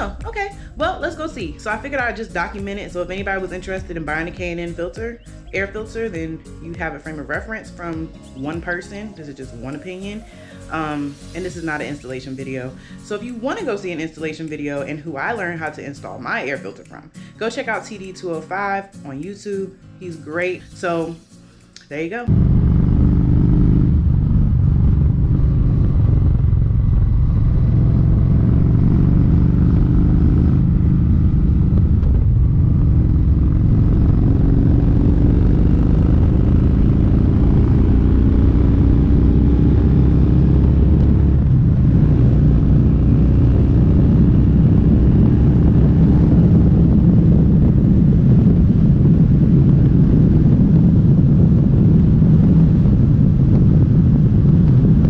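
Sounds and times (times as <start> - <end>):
motorcycle engine accelerating: 22.3 - 55.0.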